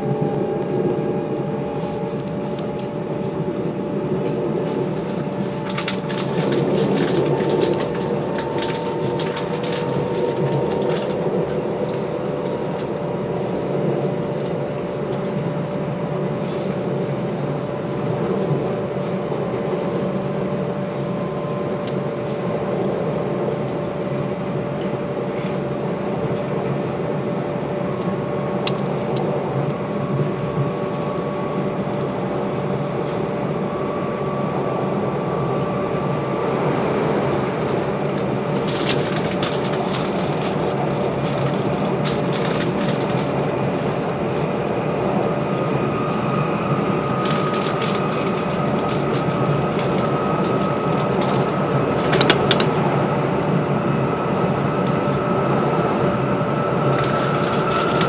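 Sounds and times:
train wheels rumbling on rail: 0:00.0 - 0:58.0
sharp clicking and rattling: 0:05.4 - 0:11.2, 0:38.6 - 0:43.4, 0:47.1 - 0:52.8.

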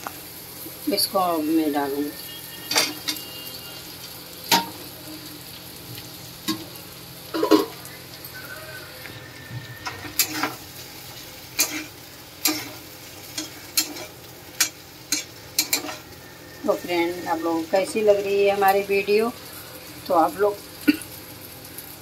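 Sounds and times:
food sizzling in pan: 0:00.0 - 0:22.0
metal spatula scraping pan: 0:02.4 - 0:03.3, 0:09.8 - 0:10.7, 0:11.6 - 0:17.5.

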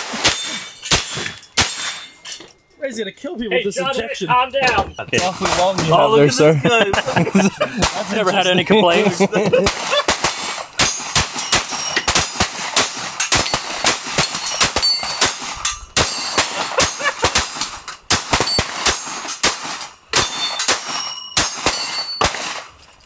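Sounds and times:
pistol shots: 0:00.0 - 0:02.1, 0:07.7 - 0:08.4, 0:09.0 - 0:22.8
high ringing tones: 0:00.3 - 0:06.5, 0:10.5 - 0:12.4, 0:13.4 - 0:17.1, 0:20.2 - 0:22.3.

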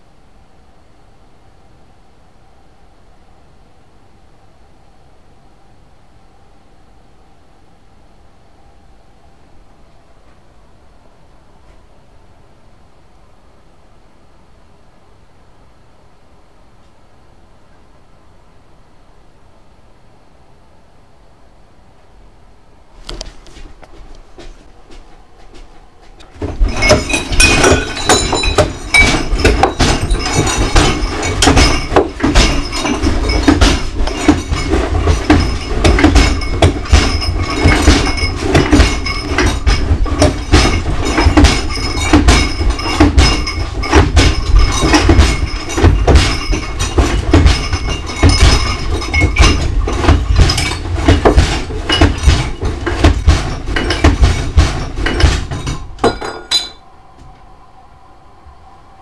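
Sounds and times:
loud clattering and knocking: 0:24.4 - 0:56.8.

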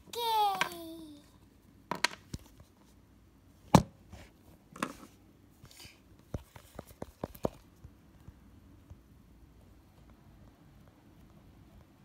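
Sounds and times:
plastic toys clicking and knocking: 0:00.5 - 0:00.9.

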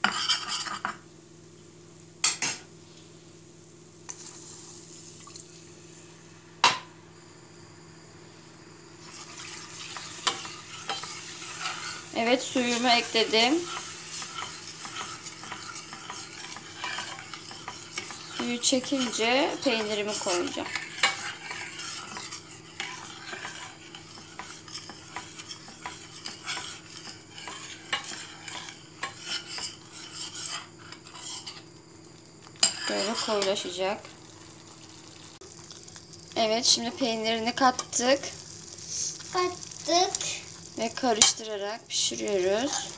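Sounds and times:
sizzling: 0:00.0 - 0:42.9
metal spoon stirring in pot: 0:09.0 - 0:31.6, 0:32.5 - 0:33.7, 0:42.2 - 0:42.9.

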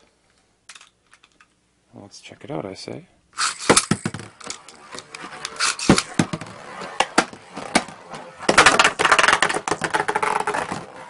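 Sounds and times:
spinning tops clattering: 0:03.4 - 0:07.9.

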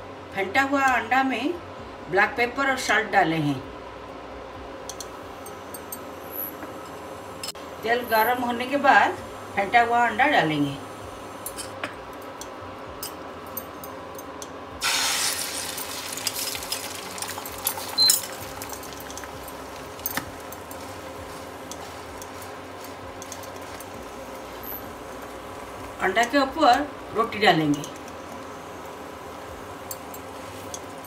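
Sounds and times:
egg sizzling in hot oil: 0:14.8 - 0:27.1, 0:28.0 - 0:31.0.

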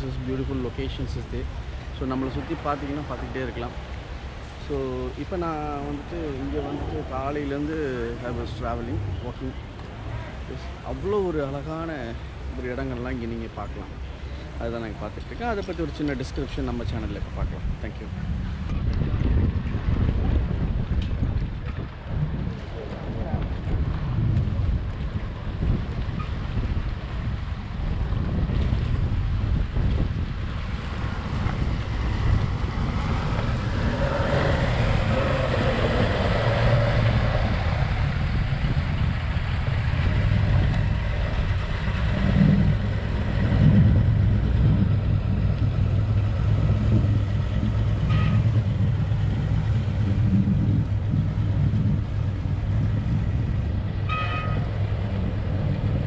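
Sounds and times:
outboard motor engine drone: 0:17.0 - 0:56.0.

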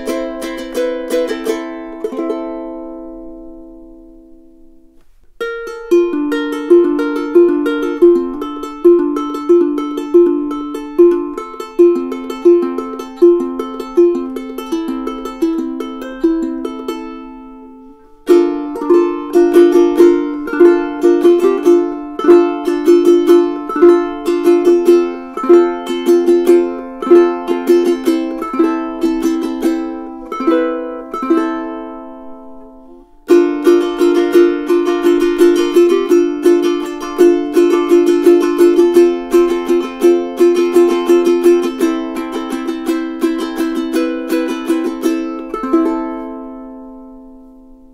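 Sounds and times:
ukulele picked notes: 0:00.0 - 0:47.9.

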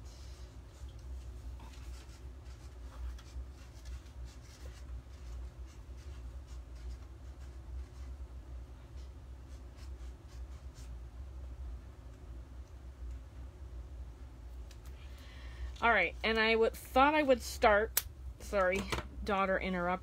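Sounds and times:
steady low hum: 0:00.0 - 0:20.0
paper scratching and ticking: 0:01.6 - 0:08.2.

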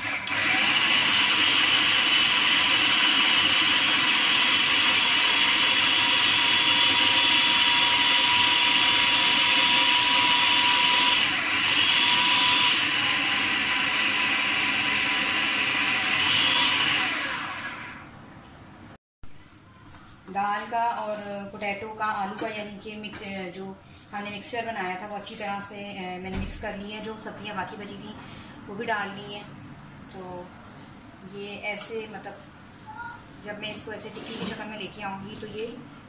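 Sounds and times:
food processor motor whine: 0:00.0 - 0:18.1.

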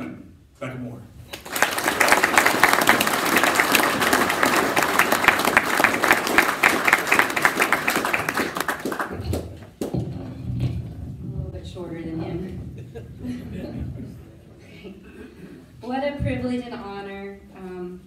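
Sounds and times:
audience applauding: 0:01.3 - 0:09.9.

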